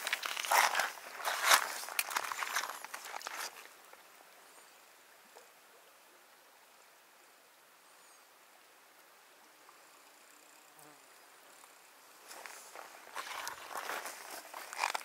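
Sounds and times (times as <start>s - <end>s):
clicks and rustling: 0.0s - 3.6s
flowing river: 0.0s - 15.0s.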